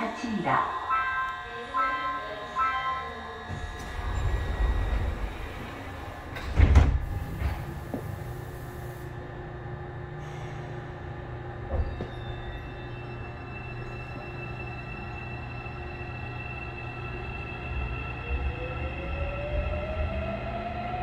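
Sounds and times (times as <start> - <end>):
train humming: 0.0 - 21.0
sliding doors closing with thud: 3.5 - 8.3.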